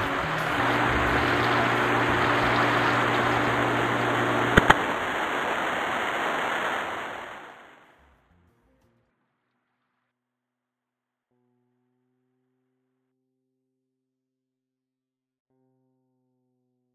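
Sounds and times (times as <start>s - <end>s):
electric fan running: 0.0s - 7.8s.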